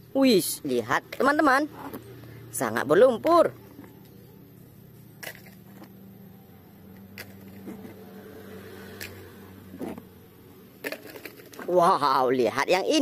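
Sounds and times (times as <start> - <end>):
faint low hum: 1.1 - 11.7
plastic toys clicking: 5.2 - 5.9, 6.9 - 8.0, 10.8 - 11.8.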